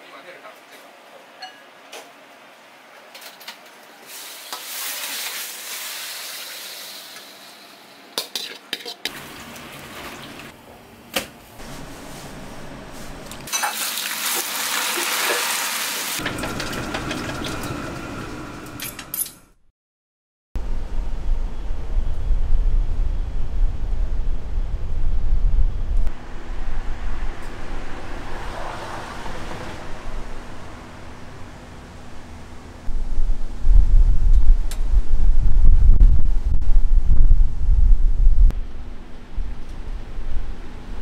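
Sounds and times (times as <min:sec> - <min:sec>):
food sizzling in a pan: 0:04.0 - 0:07.7, 0:13.5 - 0:16.2
metal utensils scraping pan: 0:08.2 - 0:09.1.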